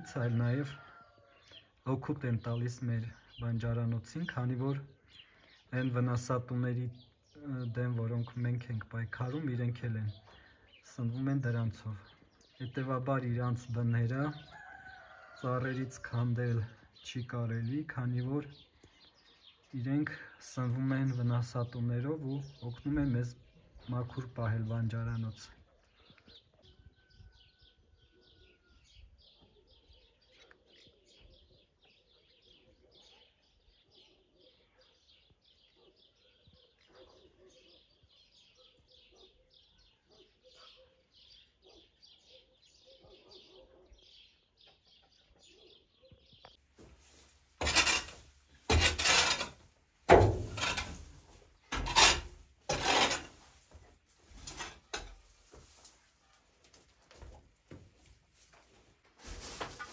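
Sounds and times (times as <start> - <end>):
small birds twittering: 0.0 - 49.6
tool raking straw on floor: 46.8 - 49.6, 59.2 - 59.9.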